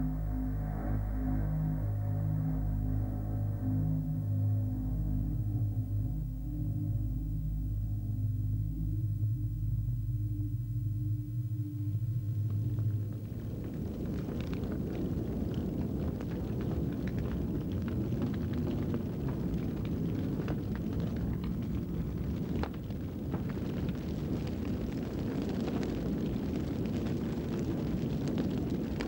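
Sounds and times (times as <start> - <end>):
brush fire rumbling and crackling: 11.7 - 29.0.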